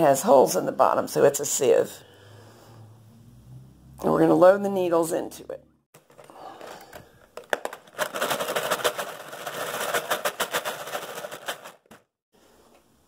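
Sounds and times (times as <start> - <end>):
metal needles rattling in box: 6.0 - 12.1.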